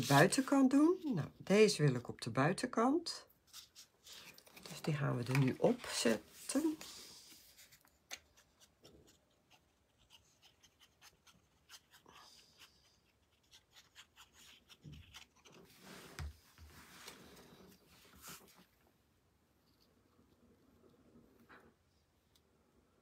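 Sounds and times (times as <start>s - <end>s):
paper rustling: 0.0s - 0.9s, 3.5s - 8.7s.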